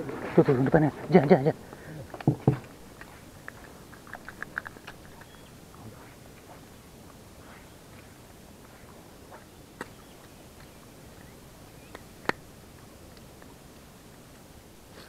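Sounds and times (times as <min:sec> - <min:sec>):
steady low hiss: 0:00.0 - 0:15.0.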